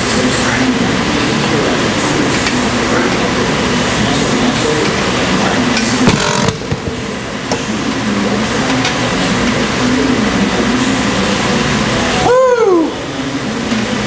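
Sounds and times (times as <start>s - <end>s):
gym din: 4.2s - 7.8s.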